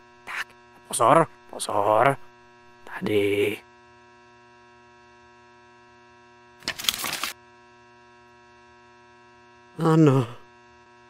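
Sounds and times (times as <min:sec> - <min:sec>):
electrical mains hum: 0:00.0 - 0:11.0
person speaking: 0:00.3 - 0:03.6.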